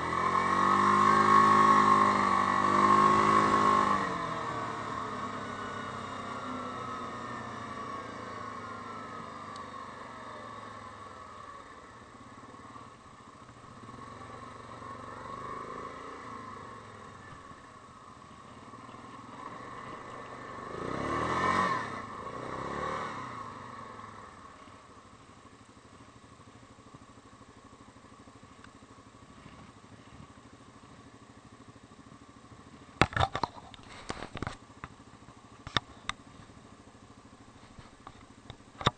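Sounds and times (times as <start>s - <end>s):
atv engine running and idling: 0.0s - 38.9s
vehicle passing close: 19.4s - 23.6s.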